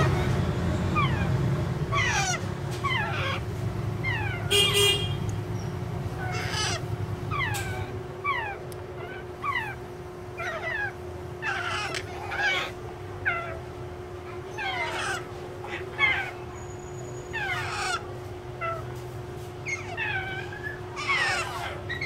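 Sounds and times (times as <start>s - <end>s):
parakeet chicks chirping: 0.0s - 22.0s
harsh parakeet squawk: 1.0s - 5.2s, 6.1s - 9.8s, 10.4s - 13.6s, 14.5s - 16.5s, 17.3s - 18.9s, 19.6s - 22.0s.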